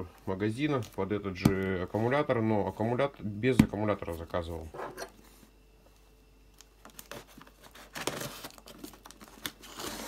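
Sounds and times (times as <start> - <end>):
scraping and rustling on cardboard: 7.0 - 10.0.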